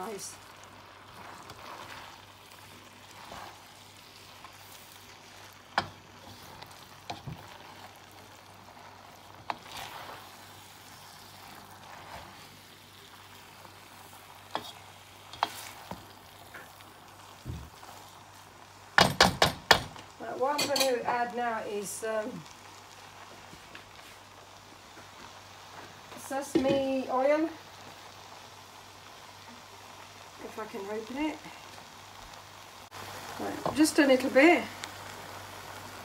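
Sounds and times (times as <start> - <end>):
food sizzling in a frying pan: 0.0 - 36.0
utensil clicking against pan: 5.7 - 6.0.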